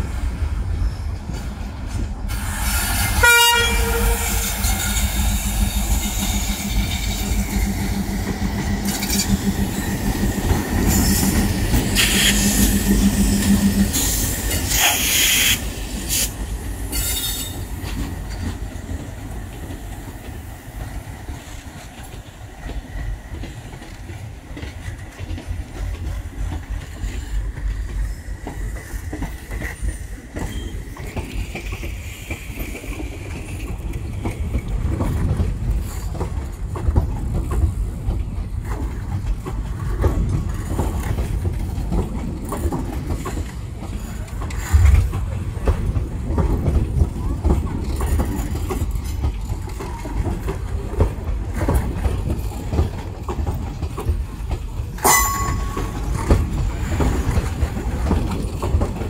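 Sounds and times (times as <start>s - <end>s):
diesel locomotive engine drone: 0.0s - 59.0s
rail clatter: 1.2s - 59.0s
train horn: 3.0s - 7.3s
wheel squeal: 16.9s - 17.6s, 29.8s - 31.1s
coaches clickety-clack: 17.8s - 59.0s.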